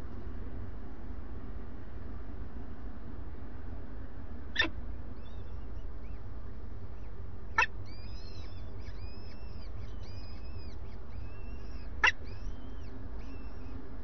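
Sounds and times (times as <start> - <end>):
falcon chicks peeping: 7.6 - 13.9.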